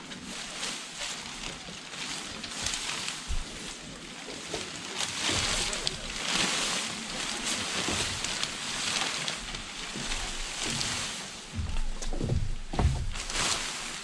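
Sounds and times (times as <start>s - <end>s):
tent fabric rustling: 0.0s - 14.0s
low thumps: 11.5s - 13.9s.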